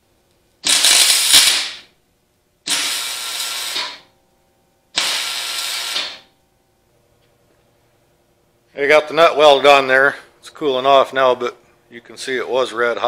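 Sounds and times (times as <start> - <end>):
arc welding: 0.6 - 2.0, 2.6 - 4.1, 4.9 - 6.3.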